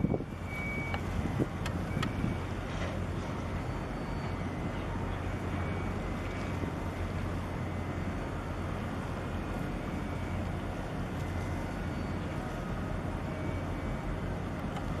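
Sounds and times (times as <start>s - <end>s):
low drone of ship engines: 0.0s - 15.0s.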